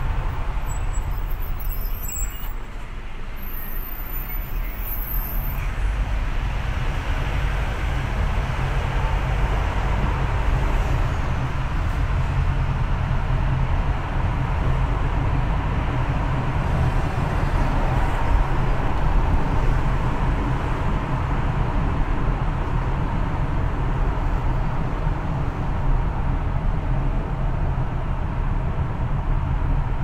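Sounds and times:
car tyre and engine rumble: 0.0 - 30.0.

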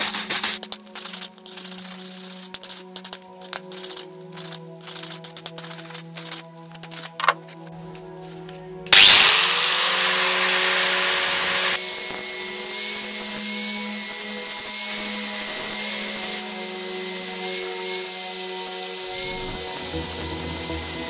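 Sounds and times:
angle grinder grinding steel: 8.9 - 21.0.

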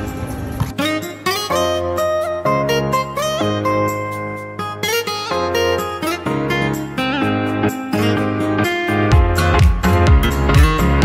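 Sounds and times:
background music melody: 0.0 - 11.0.

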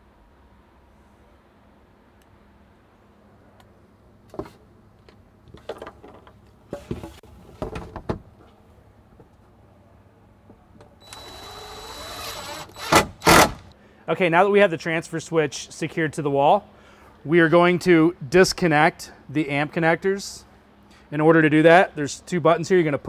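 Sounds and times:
cordless drill driving screw: 11.0 - 13.7.

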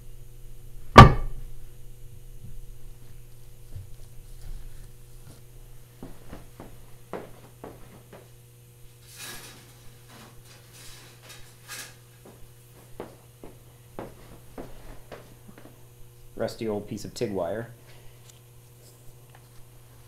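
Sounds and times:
steady low hum: 0.0 - 20.0
scraping rustles: 3.0 - 15.8
knocks and clinks of parts: 9.0 - 13.2.

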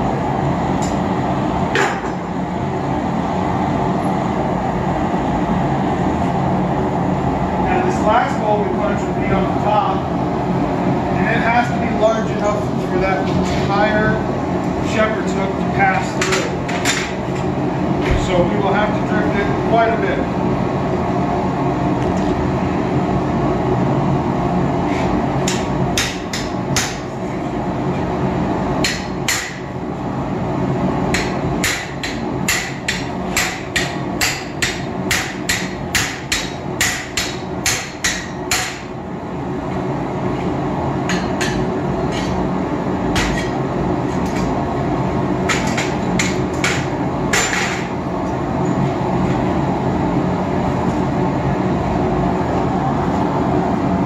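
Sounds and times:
gas forge burner roar: 0.0 - 54.0
hammer striking steel on anvil: 25.4 - 27.0, 28.8 - 29.7, 31.1 - 38.9.

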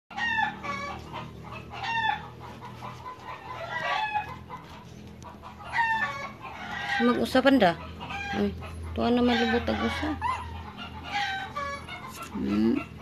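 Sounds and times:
high-pitched animal cries: 5.6 - 13.0.

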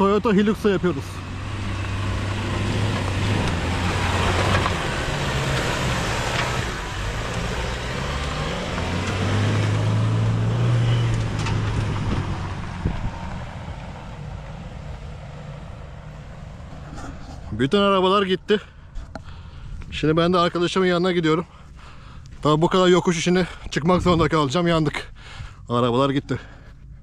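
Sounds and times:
pickup engine driving off: 0.0 - 17.5.

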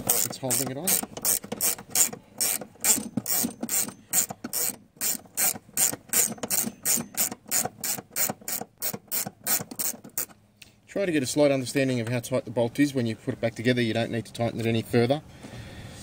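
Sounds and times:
socket ratchet clicking: 0.0 - 10.3.

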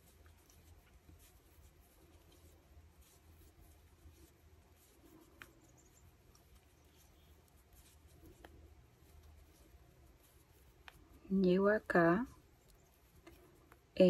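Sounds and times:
knitting needles clicking: 4.1 - 14.0.

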